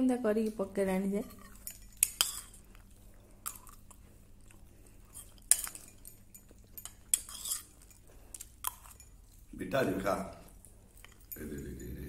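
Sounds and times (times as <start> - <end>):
tableware clinking and scraping: 1.1 - 2.7, 5.1 - 10.3.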